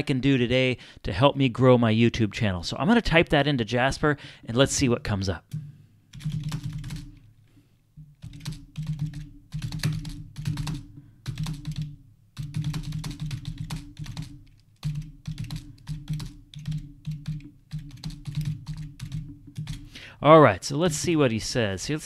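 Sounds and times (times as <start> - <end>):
typing on a keyboard: 6.1 - 7.2, 8.2 - 19.9.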